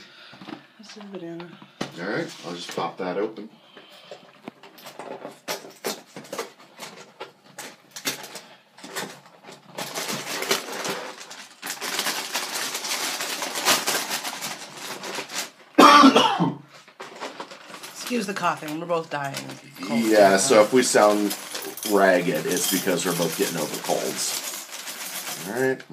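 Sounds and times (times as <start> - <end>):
plastic bag crinkling: 3.9 - 15.9, 16.7 - 25.8
person coughing: 15.8 - 16.6.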